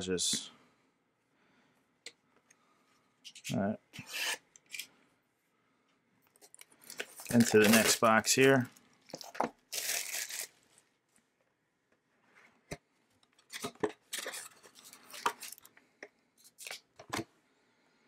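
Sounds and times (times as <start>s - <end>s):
foil pack rustling and crinkling: 6.5s - 10.6s.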